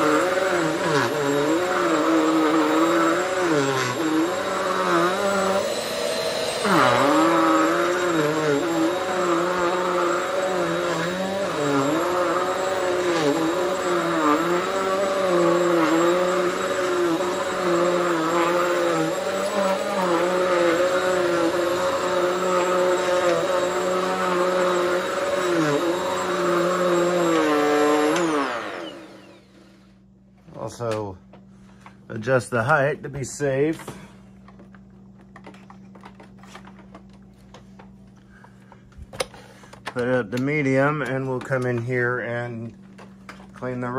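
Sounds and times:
vacuum cleaner winding down: 0:00.0 - 0:29.9
vacuum cleaner running: 0:00.0 - 0:43.9.

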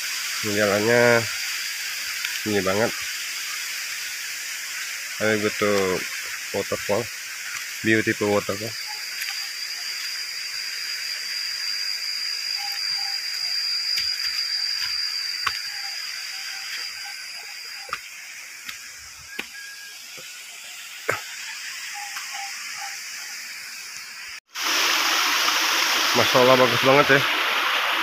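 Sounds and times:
thin high steady tone: 0:00.0 - 0:24.4
waterfall rushing: 0:24.6 - 0:28.0.

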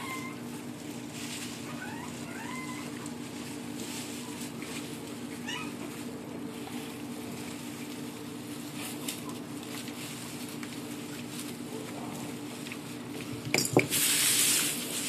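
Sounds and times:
puppy whimpering: 0:00.0 - 0:00.6, 0:01.6 - 0:03.3, 0:05.3 - 0:06.0
soft rustles: 0:00.0 - 0:15.0.

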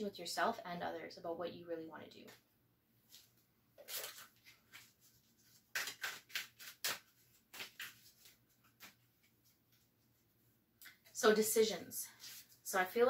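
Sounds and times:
cards being shuffled: 0:03.1 - 0:09.9.

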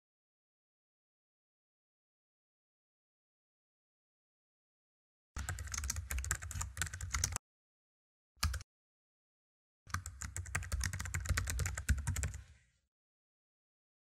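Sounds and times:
keyboard typing: 0:05.4 - 0:07.4, 0:08.4 - 0:08.6, 0:09.9 - 0:12.5.

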